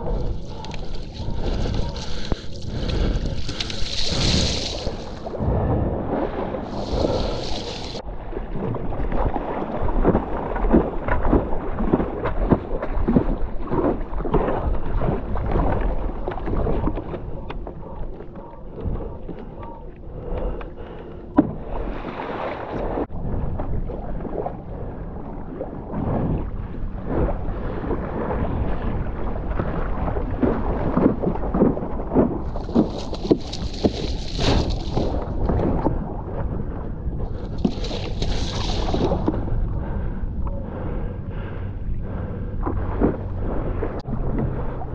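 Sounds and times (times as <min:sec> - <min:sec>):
water splashing against board: 0:00.0 - 0:05.4, 0:06.1 - 0:08.0, 0:08.6 - 0:17.6, 0:29.5 - 0:36.5, 0:37.3 - 0:39.5
wind buffeting microphone: 0:00.0 - 0:44.9.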